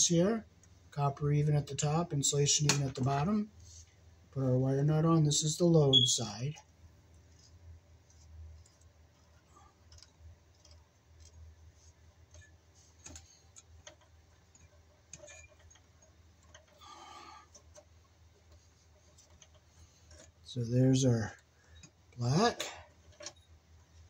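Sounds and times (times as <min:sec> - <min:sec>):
wire nut clicking and rubbing: 0:07.2 - 0:20.5, 0:21.4 - 0:24.0.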